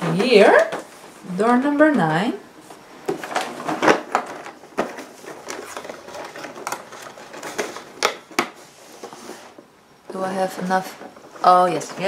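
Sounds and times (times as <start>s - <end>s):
cardboard clicks and scrapes: 3.1s - 9.6s.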